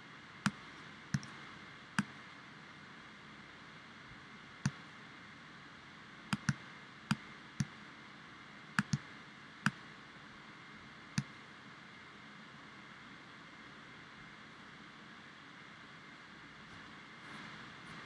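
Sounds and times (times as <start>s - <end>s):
faint steady hiss: 0.0s - 18.0s
computer mouse clicks: 0.4s - 1.4s, 2.0s - 2.2s, 4.6s - 4.8s, 6.3s - 7.8s, 8.8s - 9.8s, 11.1s - 11.4s.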